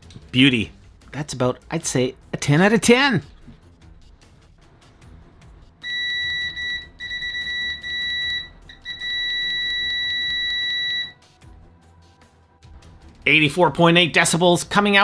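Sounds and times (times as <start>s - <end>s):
multimeter continuity beeper tone: 5.8s - 11.1s.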